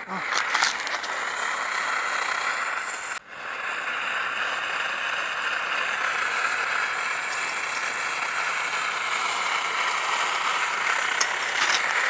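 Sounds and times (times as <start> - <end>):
camp stove hissing: 0.0 - 12.0.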